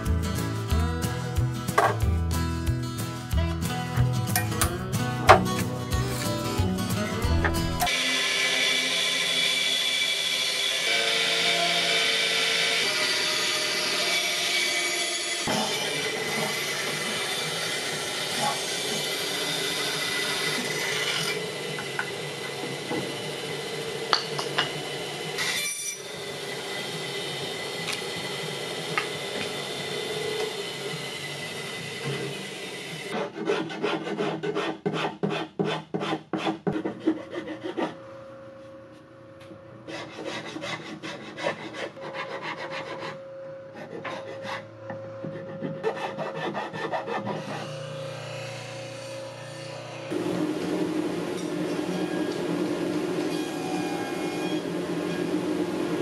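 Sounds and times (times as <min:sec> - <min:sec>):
band saw cutting wood: 0:07.3 - 0:37.9, 0:39.9 - 0:43.2, 0:43.8 - 0:56.0
hand file rasping wood: 0:33.1 - 0:38.0, 0:39.9 - 0:43.2, 0:43.8 - 0:47.8.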